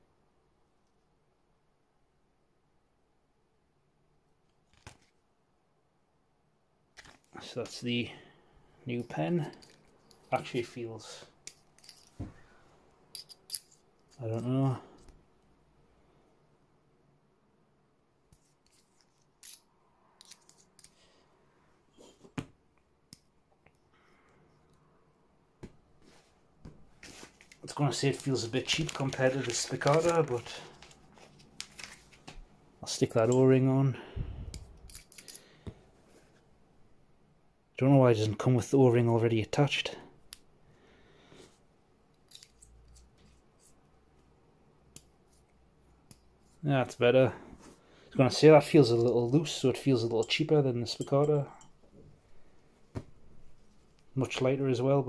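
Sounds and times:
metal pen clicks and scrapes: 0:18.3 - 0:21.0, 0:34.5 - 0:35.4, 0:42.3 - 0:43.8
pen clicking and scraping: 0:20.2 - 0:20.9.

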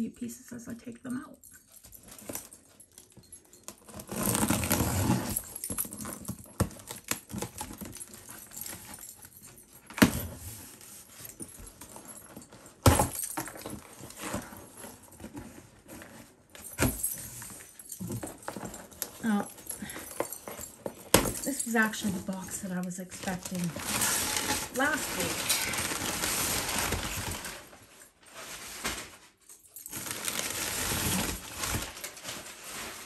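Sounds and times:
parcel rustling: 0:10.6 - 0:33.0.

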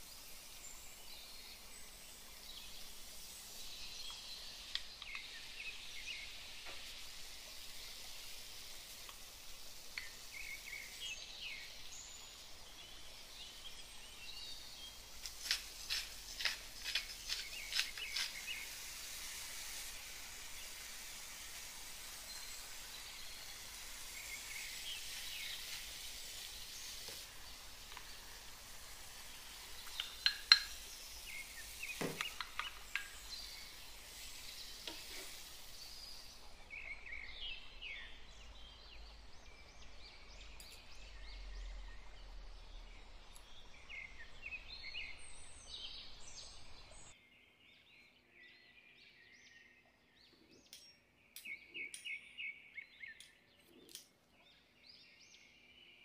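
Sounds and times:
food sizzling in a frying pan: 0:00.0 - 0:39.3
wooden spoon stirring: 0:15.1 - 0:20.0, 0:25.1 - 0:35.5.

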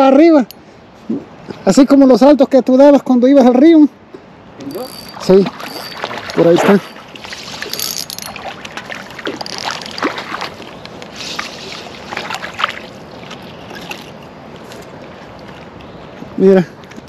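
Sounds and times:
fish splashing at water surface: 0:04.8 - 0:15.8.

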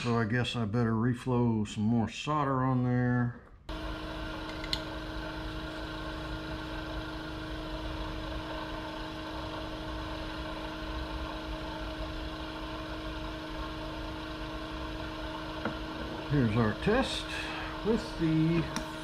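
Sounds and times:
electric motor humming: 0:03.7 - 0:19.0.

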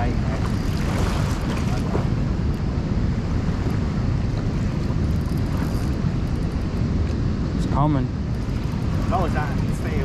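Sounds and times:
wind buffeting microphone: 0:00.0 - 0:10.0
river water rushing: 0:00.4 - 0:02.2.

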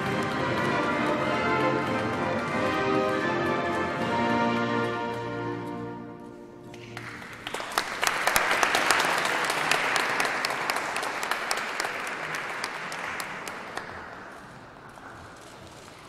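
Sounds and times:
music: 0:00.0 - 0:07.6
audience applauding: 0:06.7 - 0:16.0.

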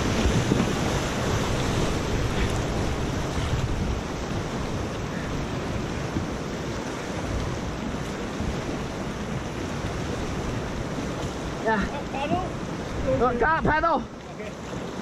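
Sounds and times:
whitewater rushing: 0:00.0 - 0:15.0
wind buffeting microphone: 0:00.0 - 0:15.0.

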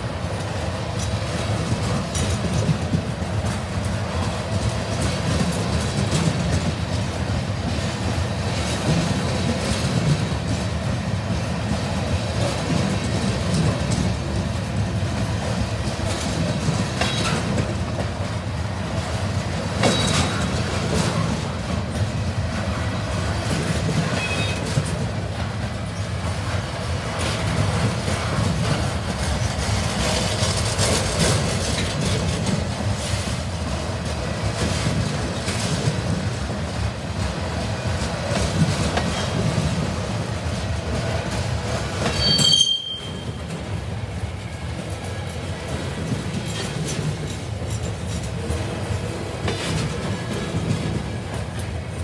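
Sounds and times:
train wheels rumbling on rails: 0:00.0 - 0:52.0
wheels clicking over rail joints: 0:00.2 - 0:52.0
faint wheel squeals: 0:42.1 - 0:43.5.

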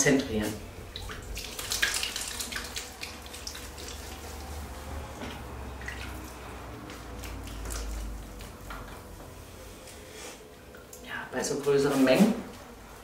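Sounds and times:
water splashing and dripping: 0:00.8 - 0:08.7.

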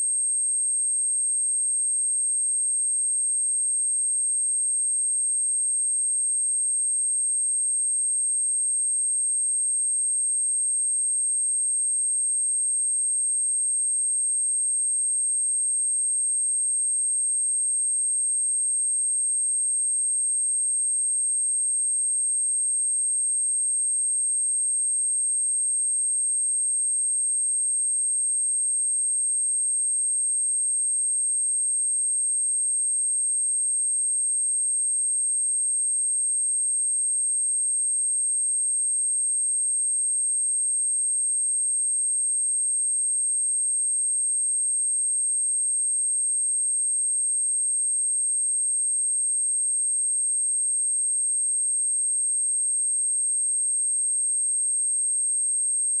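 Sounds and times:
high-pitched sine test tone: 0:49.9 - 0:56.0.

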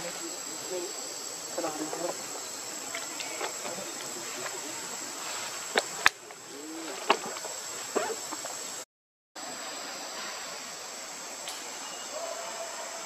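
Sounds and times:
faint hiss: 0:00.0 - 0:08.8, 0:09.4 - 0:13.0
high-pitched insect drone: 0:09.4 - 0:13.0.

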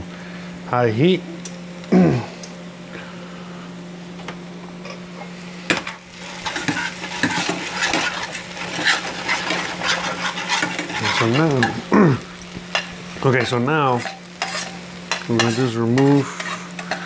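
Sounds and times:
steady low hum: 0:00.0 - 0:17.0
onions sizzling in a skillet: 0:04.9 - 0:17.0
metal tongs scraping a skillet: 0:05.8 - 0:11.9, 0:12.7 - 0:17.0.

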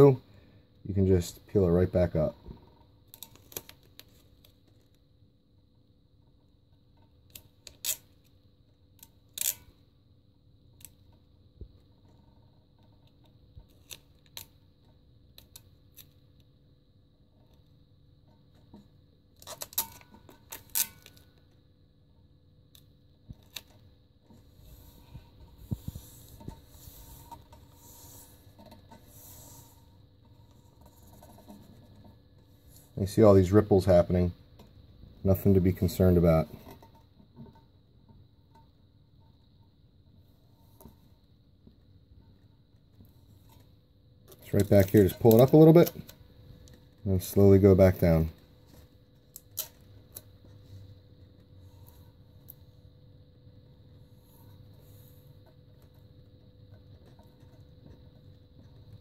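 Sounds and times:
rustles and clicks of vinyl decal: 0:02.4 - 0:05.2, 0:06.1 - 0:53.0.

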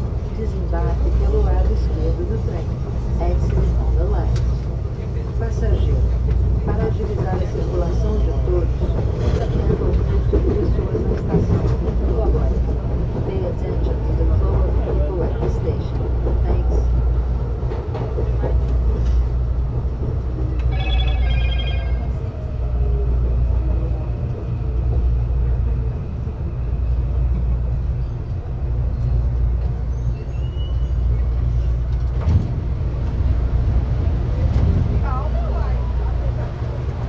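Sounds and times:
train rumbling on rails: 0:00.0 - 0:37.0
brief high tone: 0:20.7 - 0:22.3.

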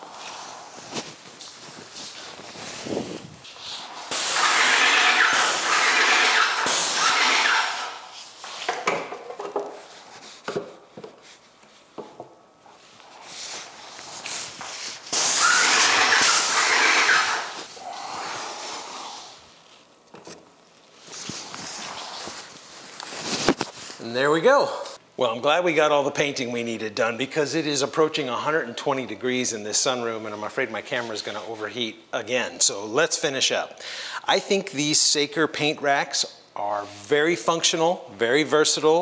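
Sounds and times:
paint sprayer spraying: 0:03.5 - 0:08.4, 0:14.6 - 0:19.0.

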